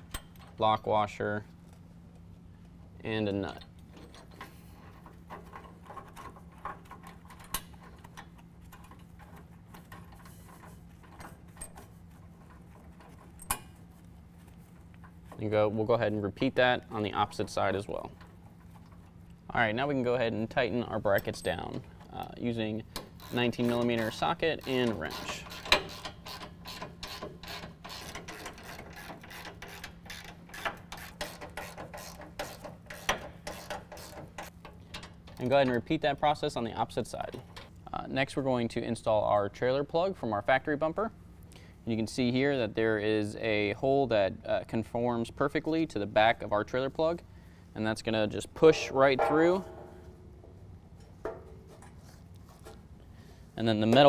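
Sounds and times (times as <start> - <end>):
faint steady hum: 0.0 - 54.0
metallic clicks of nut and washer: 22.9 - 35.9
sharp metal knock: 48.6 - 51.6.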